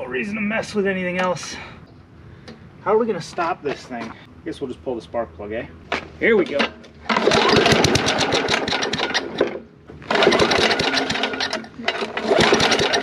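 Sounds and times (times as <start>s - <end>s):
lawn mower engine sputtering: 6.4s - 13.0s
pull-start cord: 6.5s - 13.0s.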